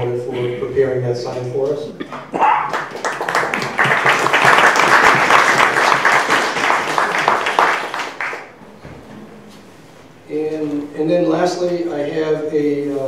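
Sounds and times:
audience applauding: 2.6s - 8.6s.

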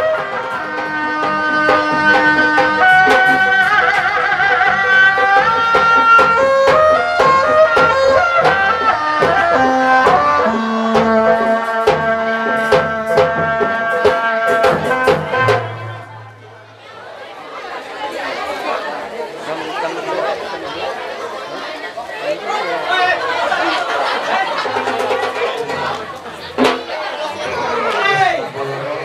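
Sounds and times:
hand drum strokes: 0.0s - 17.3s, 24.6s - 28.9s
reed pipe melody: 0.0s - 17.4s.

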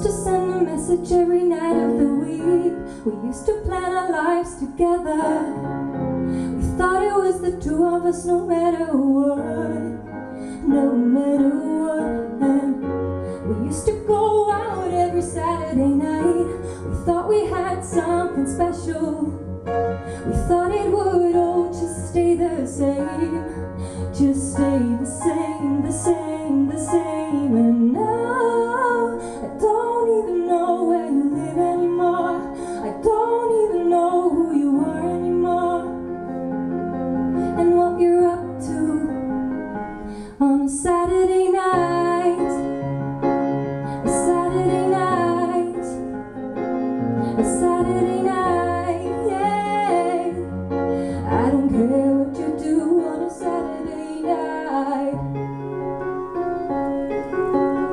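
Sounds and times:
woman singing into a microphone: 0.0s - 36.4s, 37.3s - 42.9s, 43.7s - 46.2s, 47.2s - 55.3s
electric piano chords: 0.0s - 57.9s.

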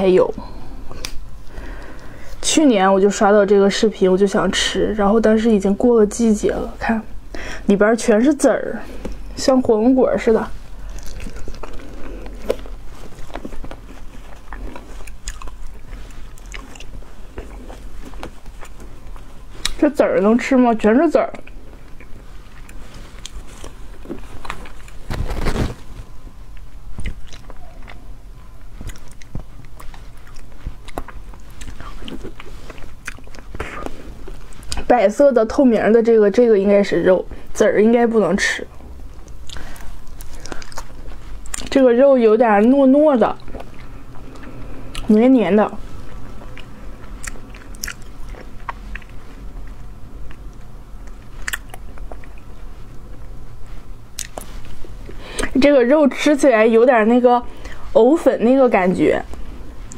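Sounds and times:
wet chewing and mouth clicks: 10.7s - 19.8s, 21.2s - 25.1s, 26.5s - 34.9s, 39.0s - 41.8s, 43.2s - 45.2s, 45.8s - 55.6s.

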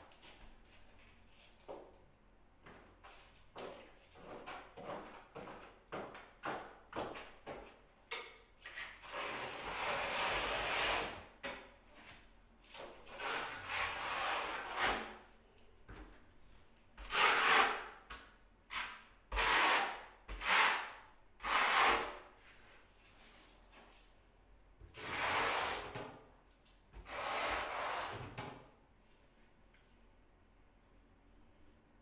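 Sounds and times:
trowel scraping tile adhesive: 8.6s - 11.3s, 13.1s - 15.2s, 17.0s - 18.0s, 18.7s - 22.2s, 25.0s - 26.0s, 27.0s - 28.3s.

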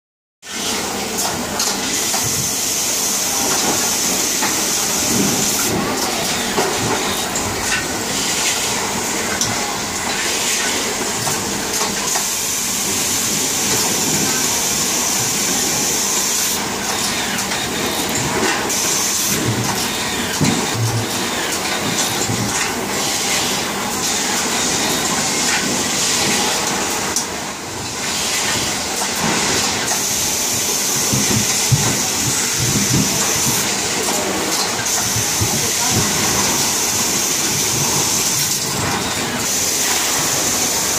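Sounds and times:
production-line machinery hissing: 0.5s - 40.9s
machinery clicks and knocks: 28.5s - 39.5s.

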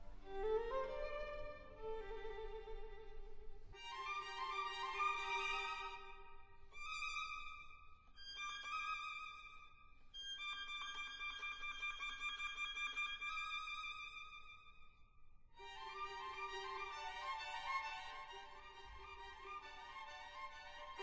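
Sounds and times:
slow violin melody: 0.0s - 14.8s, 15.6s - 21.0s.

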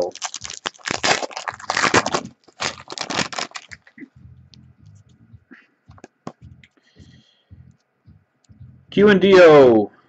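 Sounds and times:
cards rustling and clicking: 0.0s - 4.0s
wrapper tearing and crinkling: 0.0s - 4.0s.

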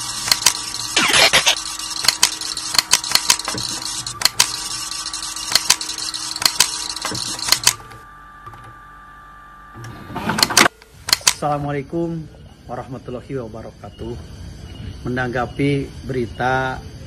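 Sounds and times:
sharp mechanical clicks: 0.0s - 7.9s, 10.4s - 11.6s
electrical hum: 0.0s - 17.0s.

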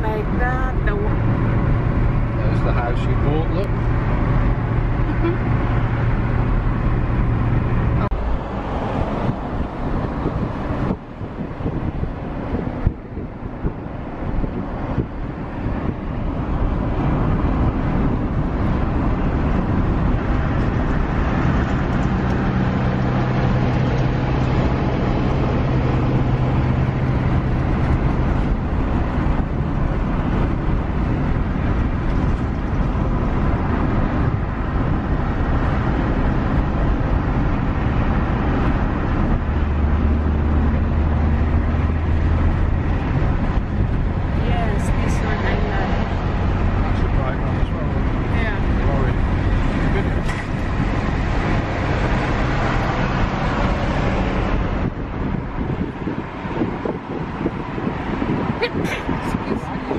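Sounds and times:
car road noise and engine hum: 0.0s - 59.9s.

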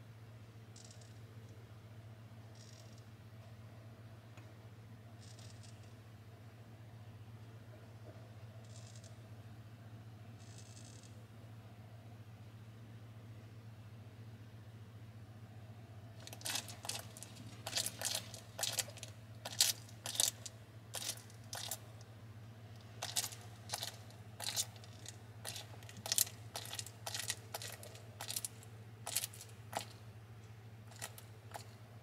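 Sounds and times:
lizard crunching insect shell: 16.2s - 21.9s, 22.8s - 30.0s, 30.8s - 31.8s.

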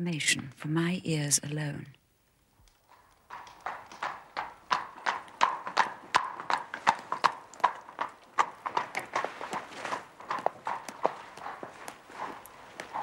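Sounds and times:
hooves clip-clopping on cobblestones: 2.6s - 13.0s.

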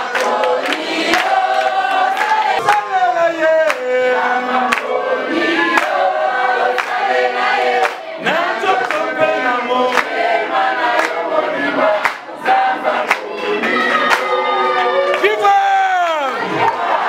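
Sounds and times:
group of voices singing: 0.0s - 17.0s.

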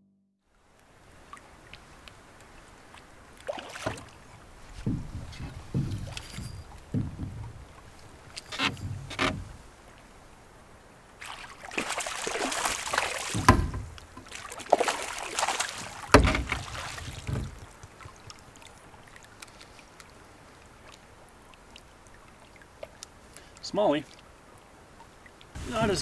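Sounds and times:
faint ticks: 0.7s - 3.5s, 17.6s - 25.6s
fish splashing in water: 1.2s - 10.1s, 11.2s - 23.2s
sharp thumps: 3.8s - 9.8s, 13.0s - 14.3s, 15.8s - 18.1s.

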